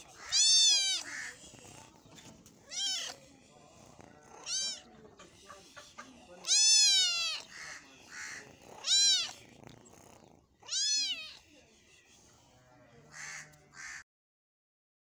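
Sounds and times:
faint rough sounds: 0.0 - 13.8
kitten meowing: 0.2 - 1.3, 2.6 - 3.2, 4.4 - 4.9, 6.4 - 9.4, 10.6 - 11.4.

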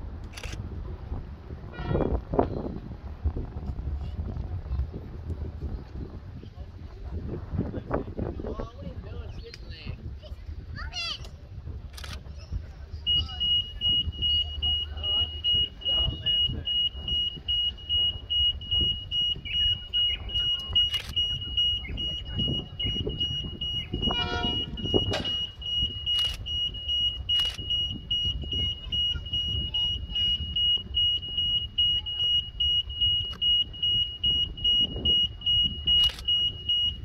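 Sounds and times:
low rumble: 0.0 - 9.2
level crossing alarm beeping: 13.1 - 37.0
sharp clicks: 20.4 - 21.4, 25.0 - 27.8, 35.9 - 36.5.

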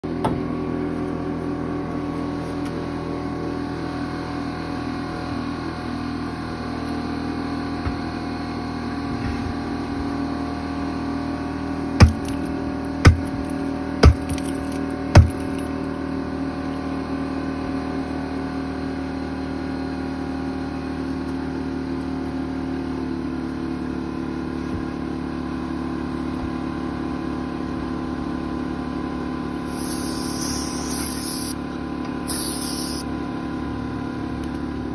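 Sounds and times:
boot stomping on steel wheel: 12.0 - 12.4, 13.0 - 14.5, 15.1 - 15.5.

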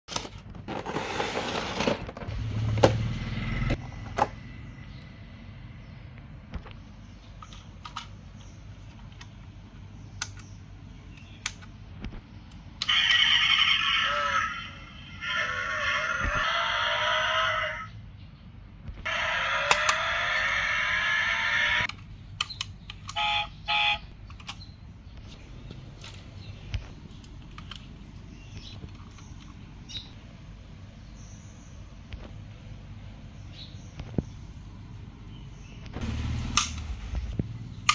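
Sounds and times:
toy car engine sound: 19.1 - 21.9.

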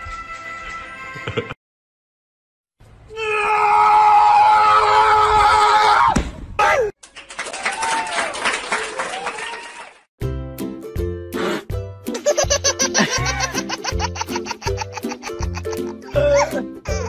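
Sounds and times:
long loud scream: 3.1 - 6.9.

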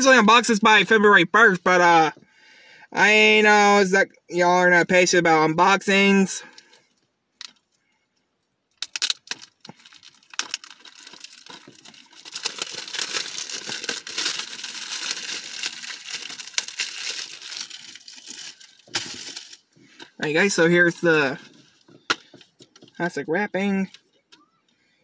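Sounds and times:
plastic shrink wrap crinkling: 8.7 - 23.0.

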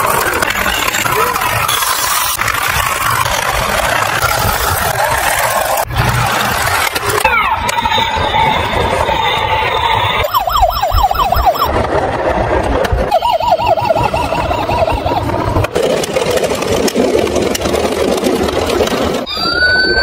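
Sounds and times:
toy police car siren: 7.2 - 11.8, 13.0 - 15.7, 19.2 - 20.0
toy sound effects: 13.0 - 15.9.

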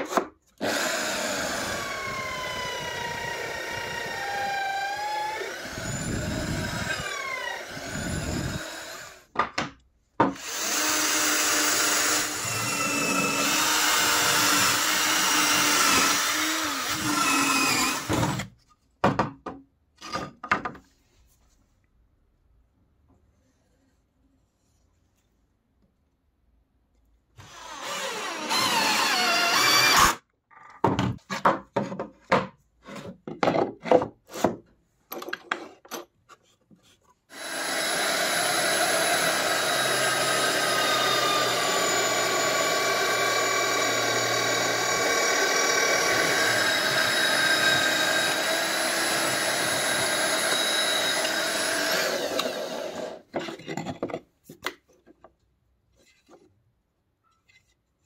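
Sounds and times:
cordless drill driving a screw: 0.6 - 9.2, 10.4 - 18.4, 27.4 - 30.2, 37.3 - 53.2
drill press boring wood: 0.6 - 9.3, 10.4 - 18.5, 27.4 - 30.2, 37.3 - 53.2.

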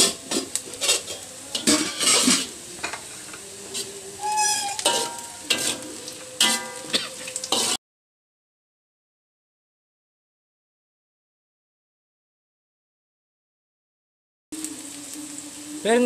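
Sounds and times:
food sizzling in hot oil: 0.0 - 7.8, 14.6 - 16.0
metal spatula scraping a pan: 0.0 - 7.8.

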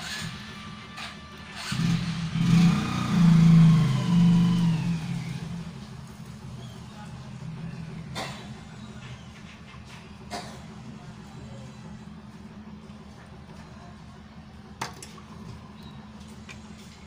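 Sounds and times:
vehicle engine passing by: 1.6 - 9.0.

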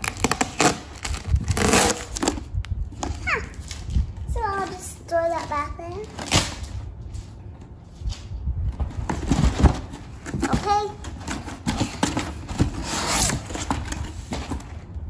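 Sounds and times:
cardboard box knocks and rustles: 8.8 - 14.7.

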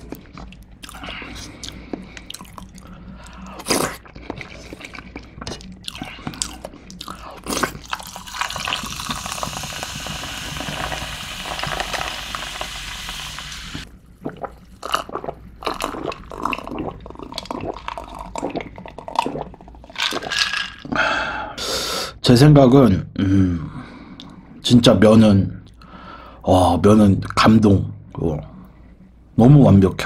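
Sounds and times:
drink poured over ice hissing: 8.0 - 13.8.

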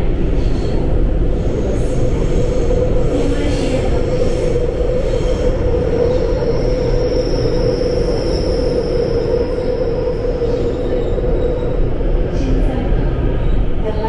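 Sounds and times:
subway train wheels rumbling: 0.0 - 14.0
faint high squeal: 2.2 - 12.0.

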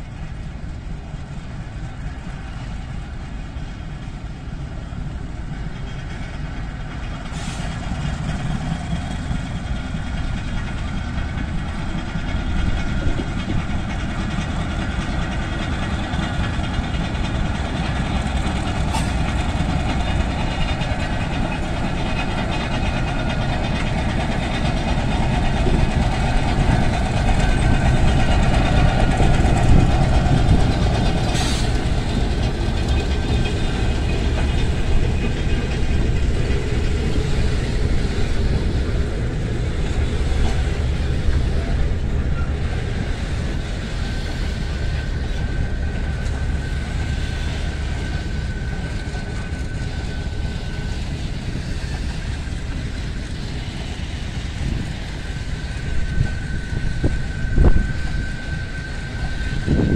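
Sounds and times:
diesel locomotive passing: 0.0 - 59.9
train wheels rumbling on rails: 0.0 - 59.9.

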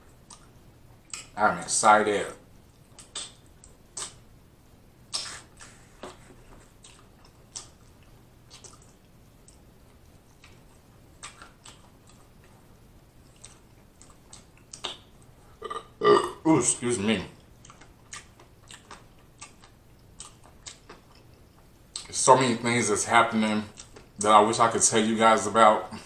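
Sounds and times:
chewing: 0.2 - 1.4, 5.1 - 15.9, 17.4 - 22.1, 23.7 - 24.2
wet finger licking smacks: 3.0 - 3.4.

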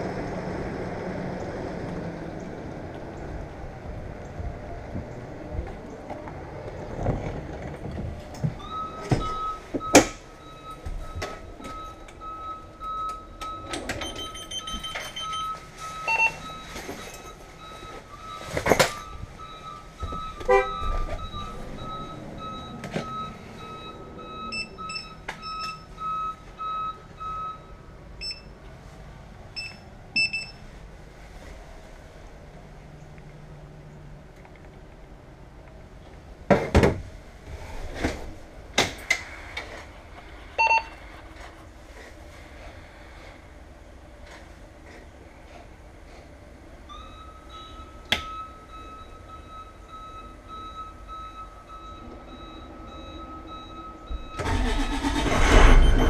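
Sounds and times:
knocks and clunks of boarding: 6.9 - 11.9, 20.0 - 21.6, 36.5 - 37.1
electronic warning beeps: 8.6 - 28.5, 29.6 - 30.6, 40.6 - 41.0, 46.9 - 56.0
short high beeps: 54.1 - 56.0.

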